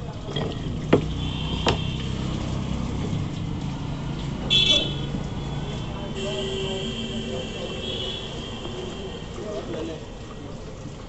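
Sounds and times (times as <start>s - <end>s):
low engine hum: 0.0s - 7.2s.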